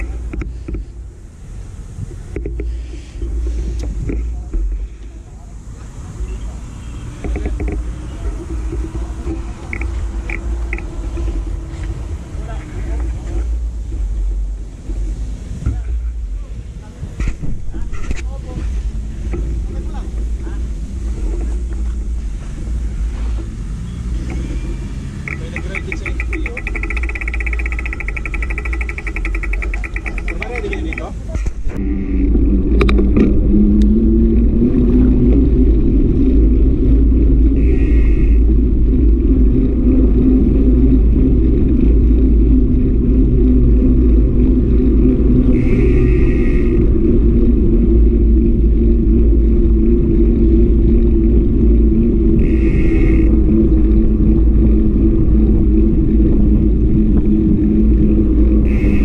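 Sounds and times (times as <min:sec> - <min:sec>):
tyres humming on road: 0:00.0 - 0:59.0
wind buffeting microphone: 0:00.0 - 0:59.0
short high-pitched buzz: 0:31.8 - 0:32.4, 0:37.6 - 0:38.4, 0:45.5 - 0:46.8, 0:52.4 - 0:53.4, 0:58.6 - 0:59.0.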